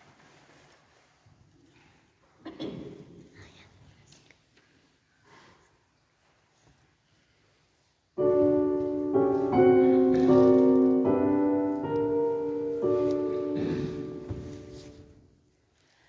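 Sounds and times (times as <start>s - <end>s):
piano chords: 8.2s - 15.2s.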